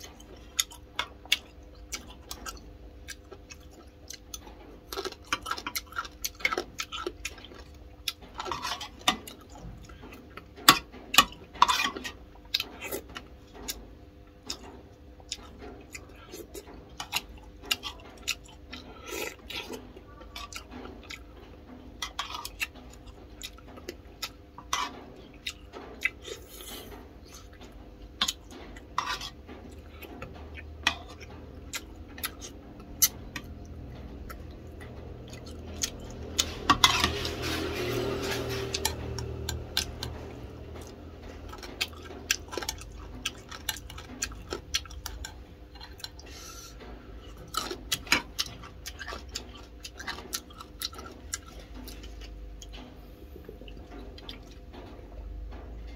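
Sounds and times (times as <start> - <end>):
metal spoon scraping ceramic bowl: 36.0 - 40.4.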